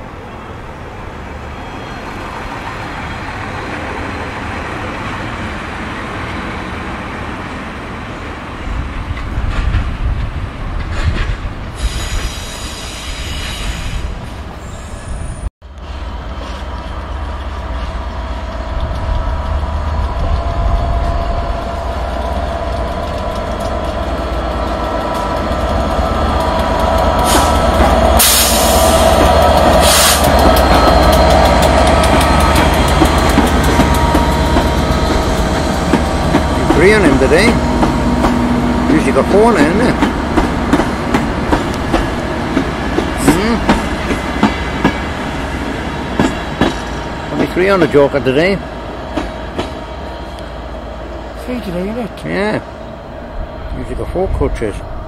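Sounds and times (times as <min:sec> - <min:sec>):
locomotive engine and rail rumble: 0:00.0 - 0:55.0
high wheel squeal: 0:25.8 - 0:32.9.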